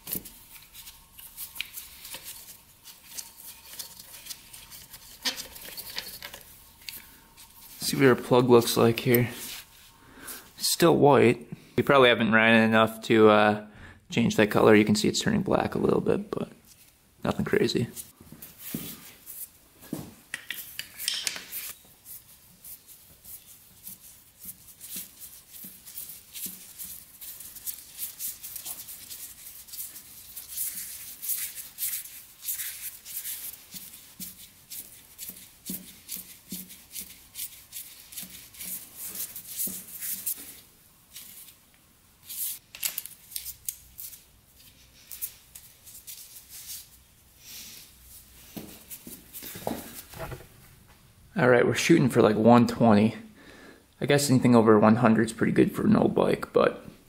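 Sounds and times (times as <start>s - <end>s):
gloved hands rubbing: 0.0s - 10.6s, 17.8s - 19.6s, 20.3s - 41.6s, 42.2s - 42.6s, 43.2s - 50.5s.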